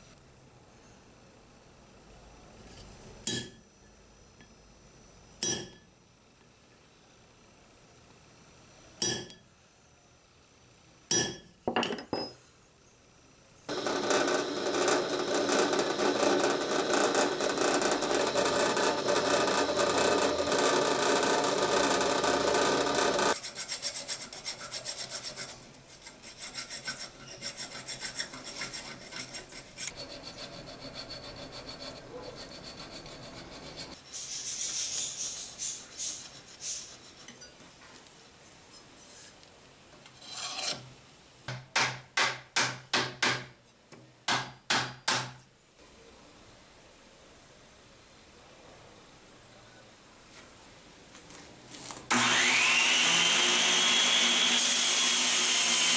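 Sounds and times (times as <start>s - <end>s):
drill boring through metal: 13.7s - 23.4s, 52.1s - 55.9s
file scraping in hole: 13.7s - 34.0s, 40.2s - 40.9s.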